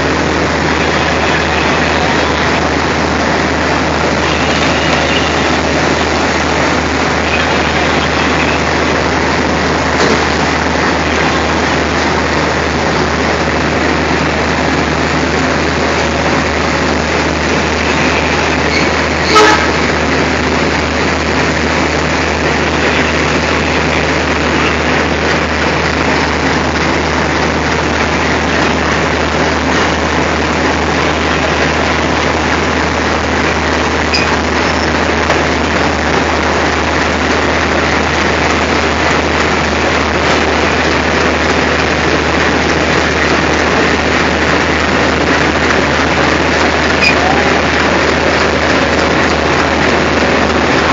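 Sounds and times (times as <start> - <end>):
diesel locomotive engine droning: 0.0 - 50.9.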